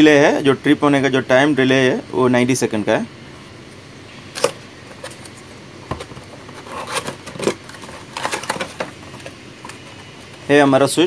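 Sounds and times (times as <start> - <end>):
cardboard box rustling: 4.4 - 10.5.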